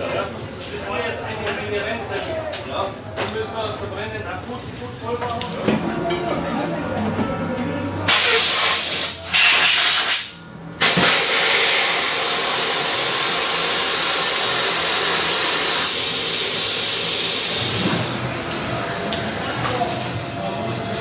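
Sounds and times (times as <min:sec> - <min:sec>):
compressed air hissing: 0:08.1 - 0:18.2.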